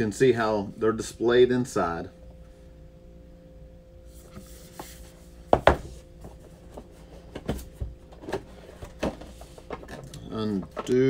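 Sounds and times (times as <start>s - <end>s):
faint steady hum: 0.0s - 11.0s
cardboard box knocks and taps: 5.5s - 5.9s.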